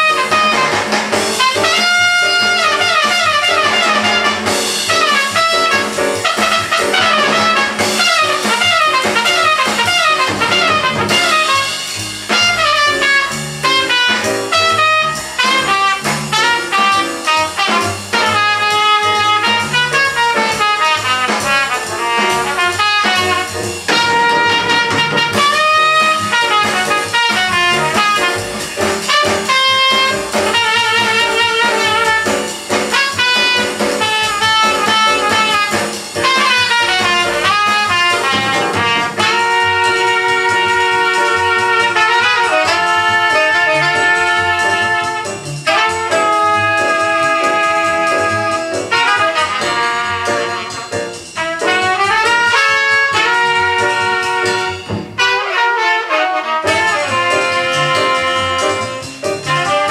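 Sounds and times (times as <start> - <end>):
drums: 0.0 - 59.9
jazz record playing: 0.0 - 59.9
trumpet: 0.0 - 59.9
saxophone: 12.4 - 28.4, 33.0 - 59.9.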